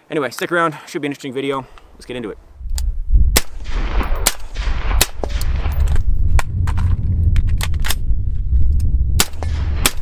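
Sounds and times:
steady low rumble: 2.2s - 10.0s
suppressed gunshots: 3.3s - 6.5s, 9.2s - 10.0s.

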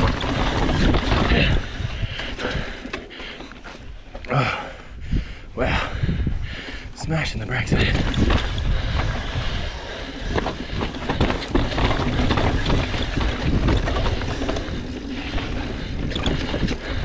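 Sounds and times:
bike chain and frame rattle: 0.0s - 4.2s, 7.5s - 17.0s
wind on microphone: 4.9s - 17.0s.

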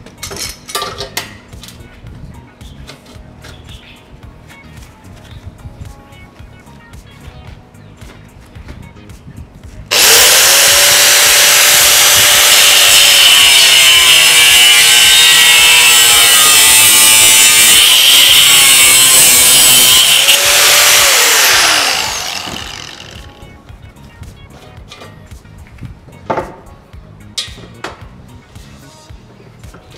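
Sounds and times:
angle grinder screeching through metal: 9.9s - 23.4s.

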